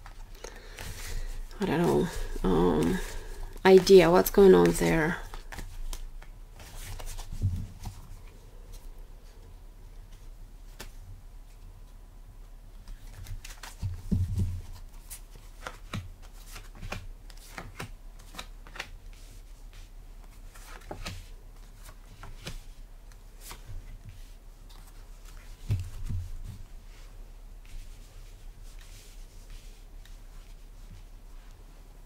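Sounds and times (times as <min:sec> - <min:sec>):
cards shuffled and dealt: 0:00.0 - 0:08.1, 0:12.8 - 0:27.0.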